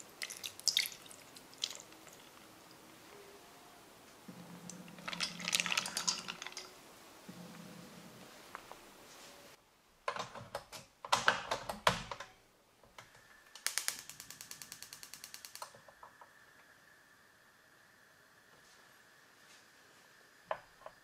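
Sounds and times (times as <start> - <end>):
rapid igniter clicks: 13.4 - 16.2.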